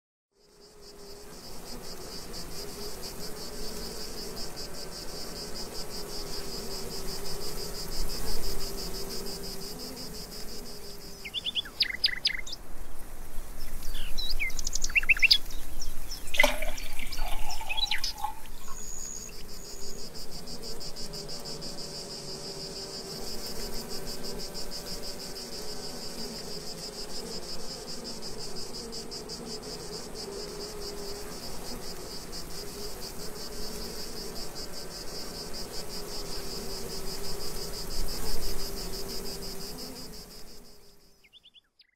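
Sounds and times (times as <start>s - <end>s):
crickets trilling: 0.4s - 12.6s, 13.3s - 41.9s
bird chirping: 11.2s - 12.6s, 13.9s - 19.3s, 41.2s - 41.9s.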